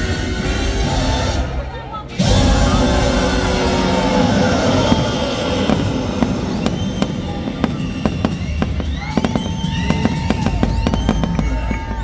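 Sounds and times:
fireworks bangs and crackles: 2.2s - 12.0s
sliding whistle-like tones: 4.1s - 12.0s.

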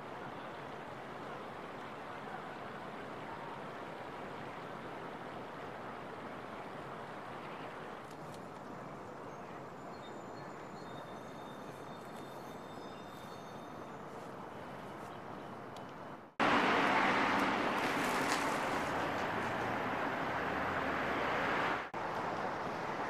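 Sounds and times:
distant traffic hum: 0.0s - 23.0s
bicycle riding on pavement: 17.4s - 19.8s.

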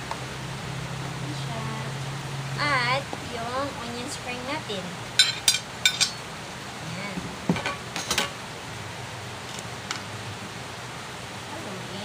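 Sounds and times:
steady low hiss: 0.0s - 12.0s
utensil clinking against pot: 5.2s - 6.2s.

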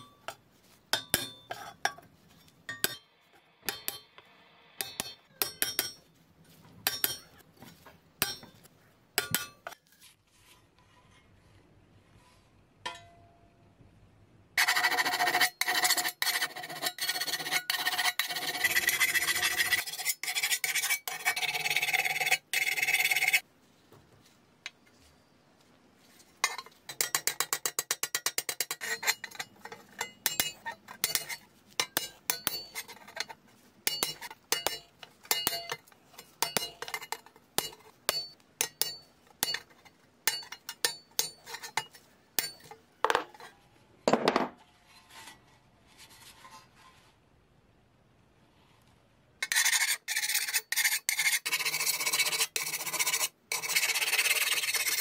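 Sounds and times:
rasp scraping on steel: 0.0s - 3.0s, 6.8s - 7.4s, 14.6s - 23.4s, 26.4s - 43.6s, 49.4s - 55.0s.

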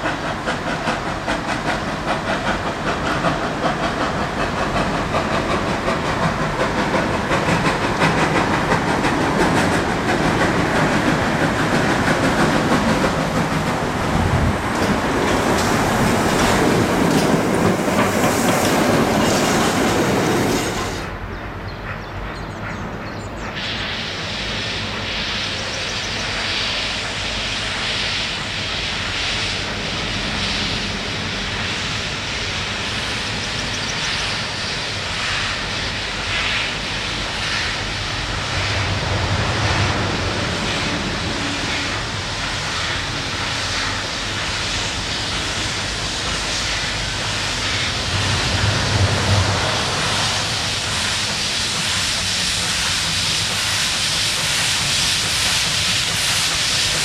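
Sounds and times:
steam hissing: 0.0s - 21.2s, 23.4s - 57.0s
steam locomotive chuffing: 0.0s - 57.0s
deep rumble: 48.0s - 50.8s.

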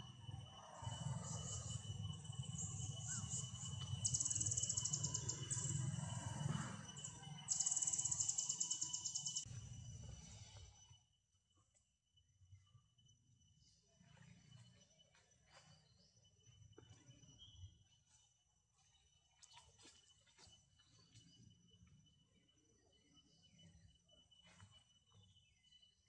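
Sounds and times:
loud pulsing insect trills: 0.0s - 9.9s
insects high whine: 0.0s - 26.0s.

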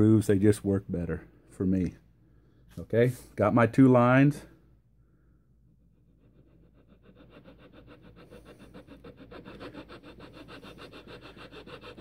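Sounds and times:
file rasping on wood: 6.0s - 12.0s.

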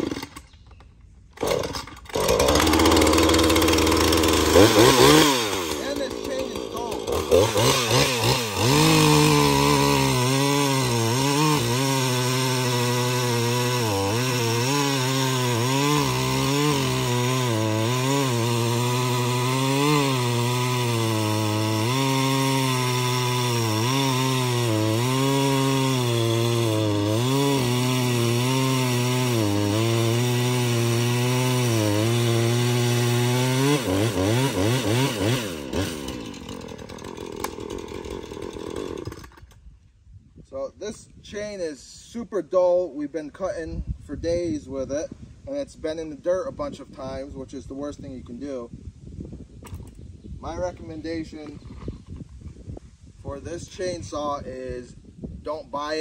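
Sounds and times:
chainsaw cutting log: 0.0s - 0.7s, 1.3s - 39.6s.

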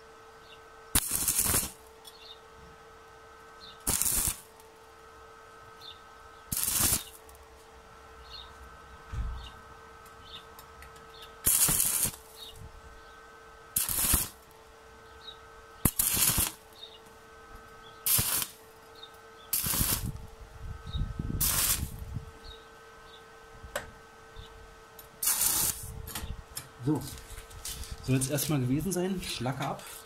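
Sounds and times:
crackling welding arc: 0.9s - 2.3s, 3.0s - 5.4s, 6.5s - 7.6s, 10.0s - 12.7s, 13.4s - 14.8s, 15.6s - 20.5s, 21.2s - 22.4s, 24.9s - 30.0s.

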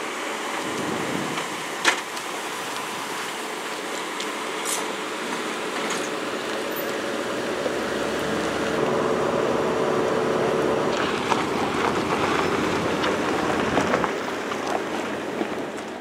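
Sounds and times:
tyres rolling over gravel: 0.0s - 16.0s
car engine running: 5.2s - 15.8s
steady rushing noise: 6.6s - 15.3s.

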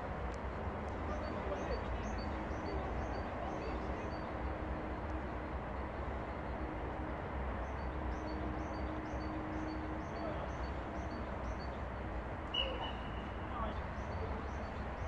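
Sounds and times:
faint high chirps: 12.5s - 13.4s
whistle blast: 12.5s - 13.4s.

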